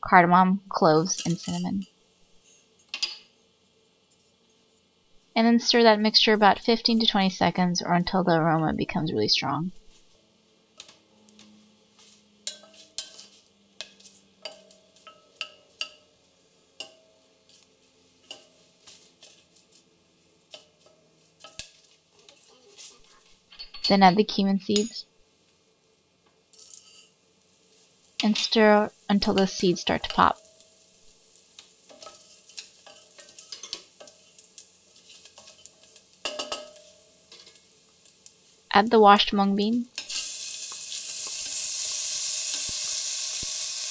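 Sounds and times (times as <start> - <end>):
spices sizzling in hot oil: 0.2 - 43.9
wooden spatula scraping steel pot: 12.0 - 15.9, 26.5 - 28.6, 31.6 - 37.7
metallic ring of steel pot: 12.4 - 16.2, 16.8 - 17.2, 30.4 - 30.9, 35.1 - 37.6.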